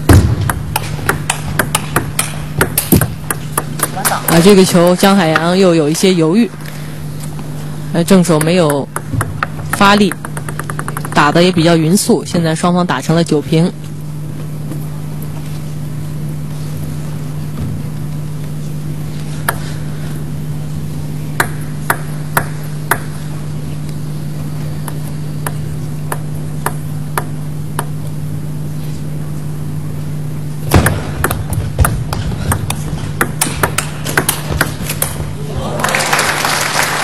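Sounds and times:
steady low hum: 0.0 - 37.0
table tennis ball clicks: 8.3 - 11.7
people clapping: 35.5 - 37.0.

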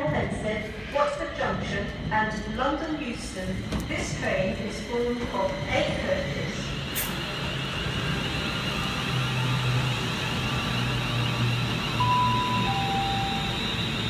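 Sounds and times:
low train engine hum: 0.0 - 14.0
short beeps: 12.0 - 14.0
warbling high electronic tone: 12.0 - 14.0.

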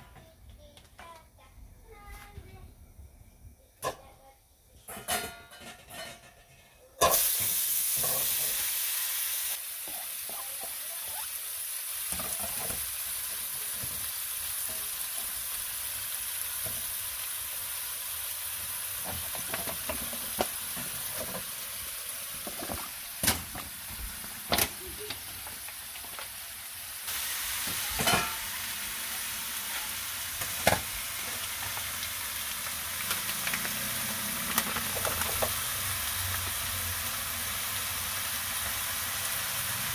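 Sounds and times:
vegetables sizzling in hot oil: 7.0 - 39.9.

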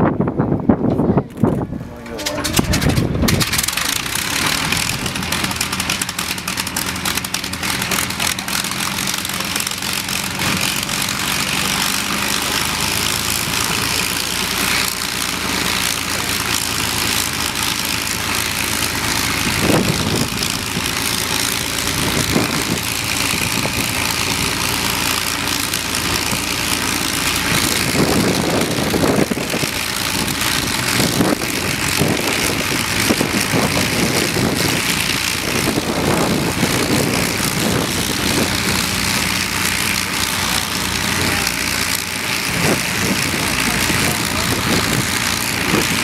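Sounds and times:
propeller engine idling: 0.0 - 46.0.

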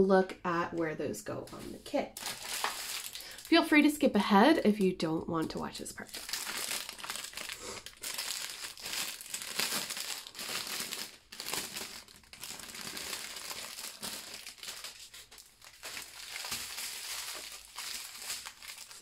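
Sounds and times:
packets rustling: 1.5 - 3.6, 6.0 - 19.0
plastic packaging crinkling: 1.5 - 3.7, 5.4 - 19.0.

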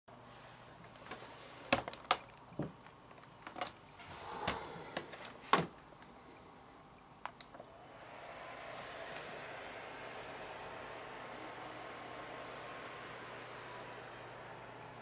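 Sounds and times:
laptop fan hiss: 3.9 - 15.0.

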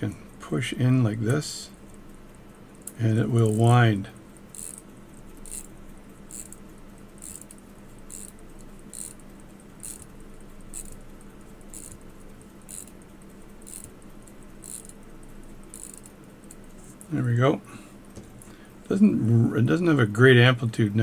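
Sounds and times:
steady low hum: 0.0 - 21.0
pocket watch ratchet clicking: 4.5 - 16.6.

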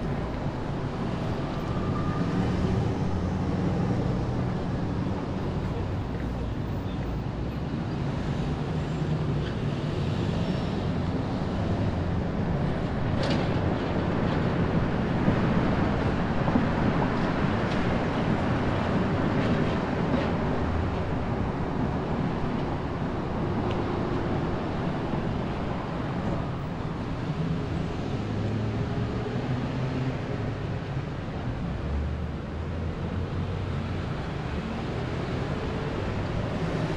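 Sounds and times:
car engine and tyre rumble: 0.0 - 36.9.

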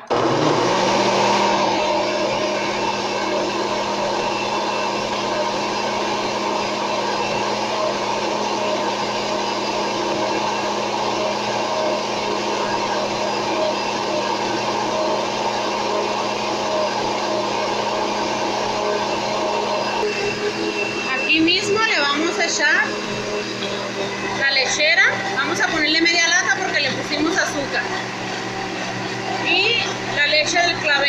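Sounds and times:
blender running: 0.0 - 31.0.

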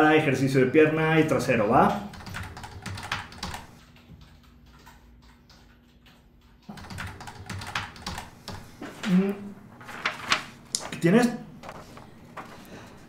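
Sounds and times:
computer keyboard typing: 2.0 - 8.8.

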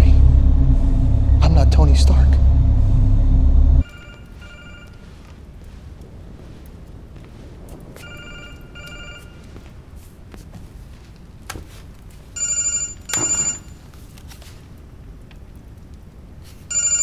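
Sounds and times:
phone warbling double ring: 3.8 - 5.1, 8.0 - 9.4, 12.4 - 13.8.

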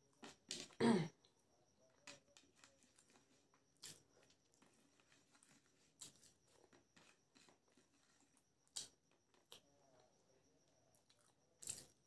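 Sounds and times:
fingers mixing rice on a plate: 1.9 - 10.2.

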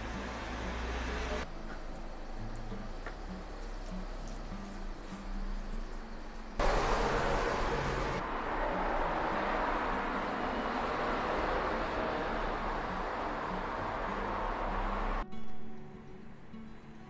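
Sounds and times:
steady outdoor rushing noise: 0.0 - 15.2.

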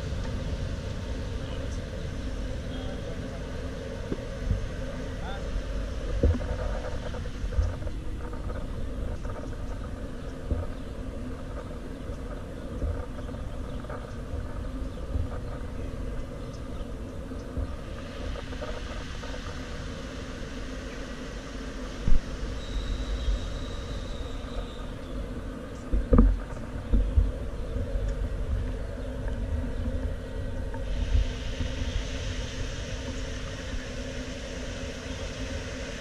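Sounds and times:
traffic rumble: 0.0 - 36.0
hiss: 17.6 - 25.1, 30.7 - 36.0.

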